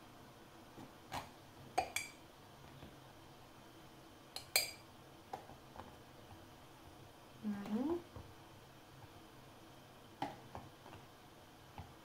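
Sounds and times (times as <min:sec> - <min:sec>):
glass and spoon clinking on saucepan: 0:01.8 - 0:02.2, 0:04.4 - 0:04.8.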